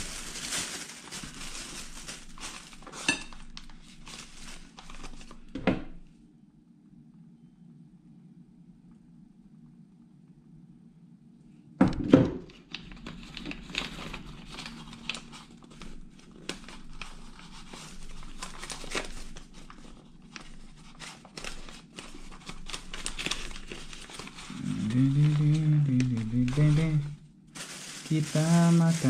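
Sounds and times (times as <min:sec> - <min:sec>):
paper and plastic bag crinkling: 0:00.0 - 0:06.0, 0:12.5 - 0:29.0
low room hum: 0:00.0 - 0:29.0.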